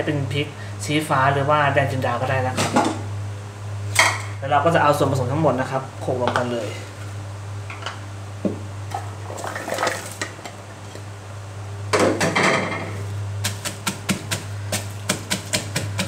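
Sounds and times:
steady low hum: 0:00.0 - 0:16.0
wooden pestle pounding in a mortar: 0:13.4 - 0:16.0.

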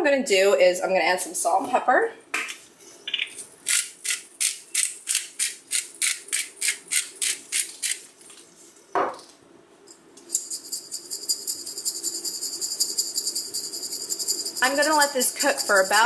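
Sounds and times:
high fluttering hiss: 0:10.3 - 0:16.0
seasoning rasping strokes: 0:10.4 - 0:16.0.

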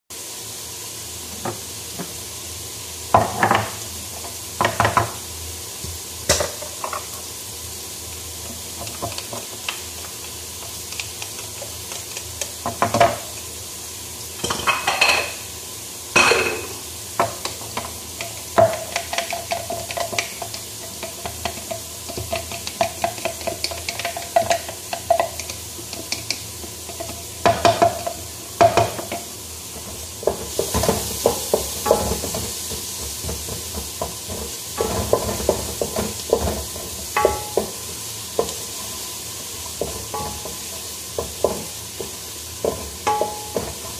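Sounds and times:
steady hiss: 0:00.1 - 0:43.9
utensil knocking and scraping a pot: 0:16.2 - 0:39.0, 0:39.6 - 0:43.9.

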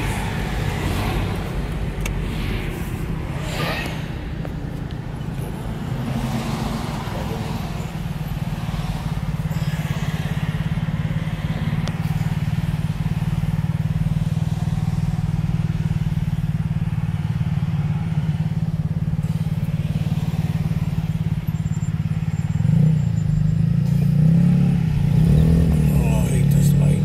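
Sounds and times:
car engine hum: 0:00.0 - 0:27.0.

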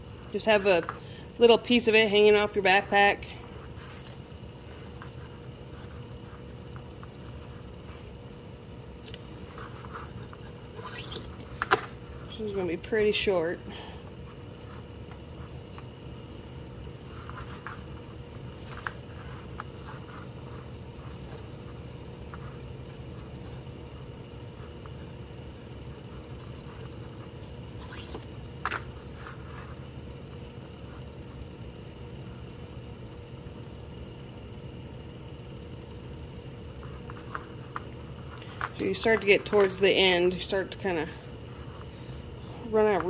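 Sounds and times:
cord scraping and rustling: 0:00.0 - 0:08.3, 0:09.0 - 0:12.7, 0:16.9 - 0:31.4, 0:36.7 - 0:43.0
low background hum: 0:00.0 - 0:43.0.

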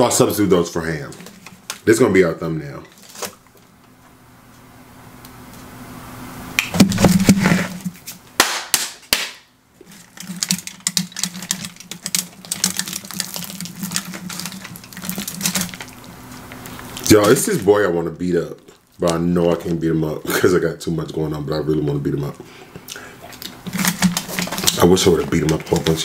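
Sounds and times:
pizza and paper crackling: 0:02.9 - 0:03.6, 0:09.8 - 0:18.0, 0:23.4 - 0:26.0.

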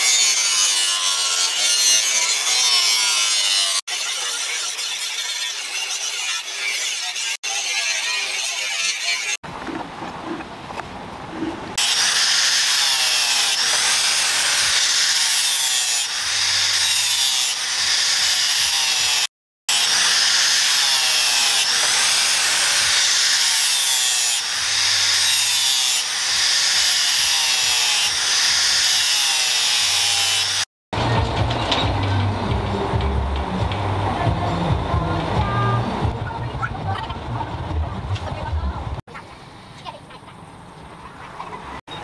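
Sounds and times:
angle grinder grinding steel: 0:00.0 - 0:09.4, 0:11.8 - 0:30.7.

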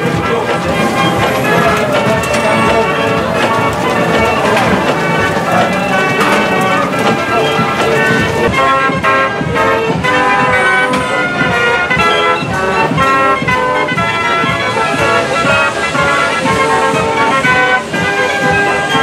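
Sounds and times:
fairground organ playing: 0:00.0 - 0:19.0.

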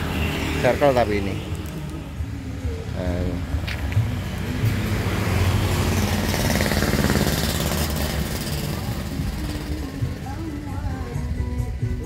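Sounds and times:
engine running roughly: 0:04.6 - 0:10.9.

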